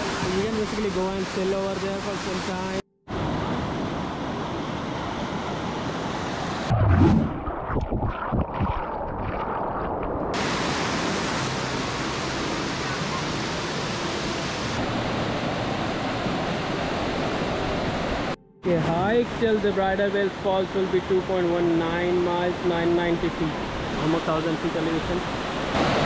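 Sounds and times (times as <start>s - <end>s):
waterfall rushing over rock: 10.4s - 18.4s.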